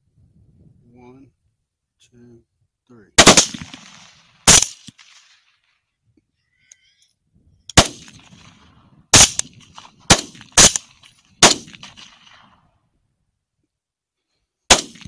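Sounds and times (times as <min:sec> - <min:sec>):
rifle shots: 0:03.2 - 0:05.6, 0:07.7 - 0:12.6, 0:14.7 - 0:15.0.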